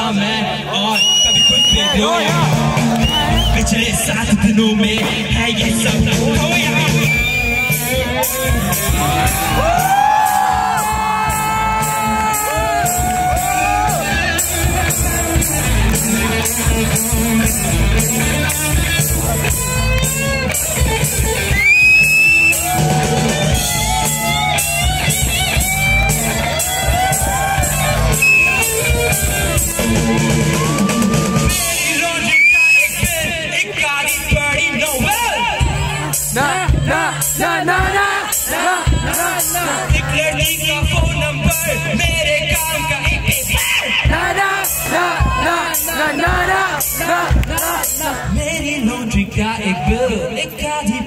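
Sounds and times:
drum kit: 1.0 - 48.7
electric guitar: 12.9 - 31.6.

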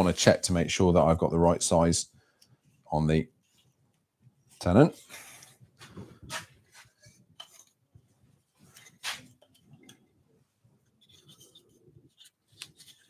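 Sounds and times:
wooden parts tapping and rubbing: 5.0 - 7.8, 10.8 - 13.0.

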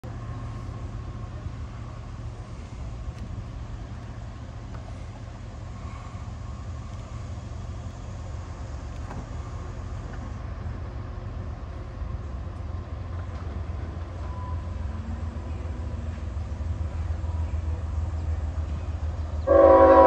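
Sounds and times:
freight train locomotive rumble: 0.0 - 20.0.

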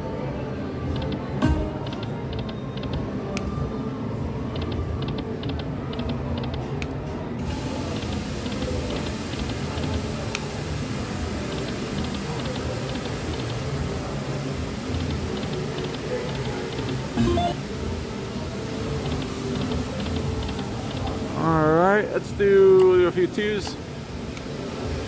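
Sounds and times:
slot machine reels ticking: 1.0 - 3.0, 7.8 - 10.0, 11.4 - 13.8, 14.8 - 17.8, 19.0 - 21.6.

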